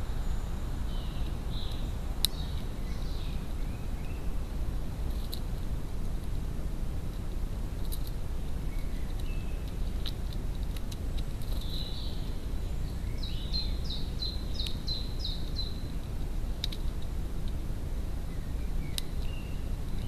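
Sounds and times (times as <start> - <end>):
songbird calling: 0.0 - 4.4, 8.6 - 10.1, 11.6 - 16.0, 18.2 - 20.0
low outdoor rumble: 0.0 - 20.0.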